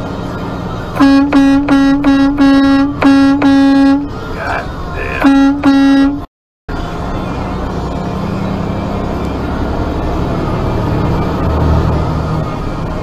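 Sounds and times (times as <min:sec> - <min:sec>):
road noise: 0:00.0 - 0:13.0
truck engine rumbling: 0:00.0 - 0:13.0
truck horn: 0:01.0 - 0:06.3.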